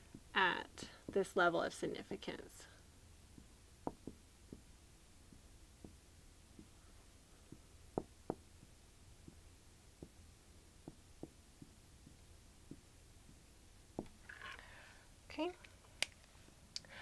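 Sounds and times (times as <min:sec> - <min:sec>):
faint low hum: 0:00.0 - 0:17.0
marker tapping on glass board: 0:03.4 - 0:04.7, 0:05.3 - 0:06.8, 0:07.5 - 0:10.2, 0:10.8 - 0:13.4.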